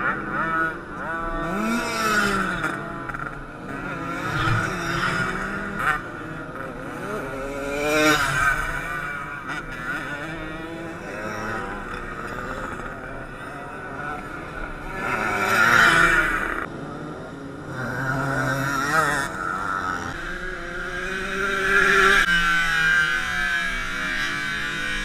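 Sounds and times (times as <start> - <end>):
moped engines revving past: 0.0 - 25.0.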